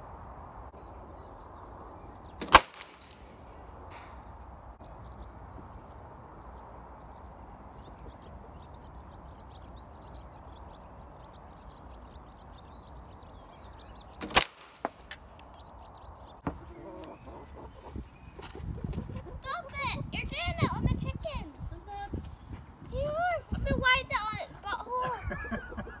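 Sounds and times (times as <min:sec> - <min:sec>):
coil gun sharp crack: 0:02.4 - 0:04.1, 0:14.2 - 0:15.2.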